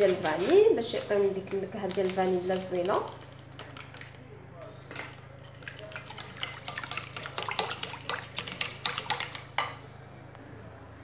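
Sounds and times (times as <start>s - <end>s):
whisk sloshing liquid: 0.0s - 4.2s, 4.8s - 9.8s
whisk clicking against glass bowl: 5.6s - 9.8s.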